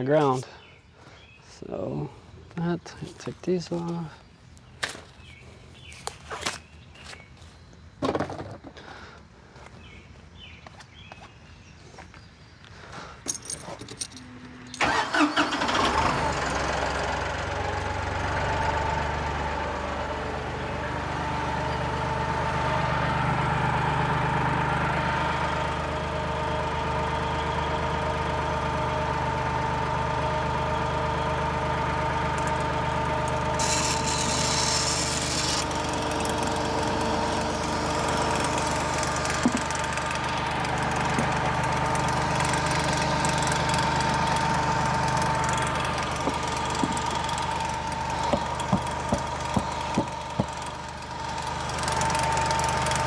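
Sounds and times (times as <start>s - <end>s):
tractor engine idling: 14.2s - 53.0s.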